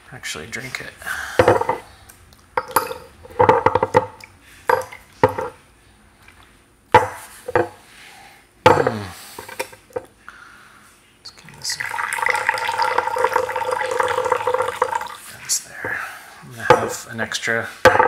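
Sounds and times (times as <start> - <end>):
porcelain cups clinking: 2.6 - 5.6, 11.8 - 15.2.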